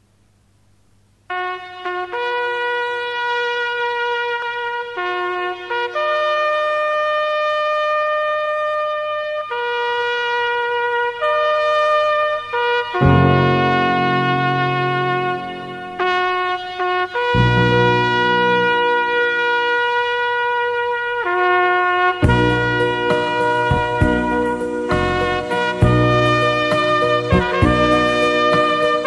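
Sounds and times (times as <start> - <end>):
wind instrument melody: 1.3 - 29.0
low accompaniment: 13.0 - 19.6, 22.1 - 29.0.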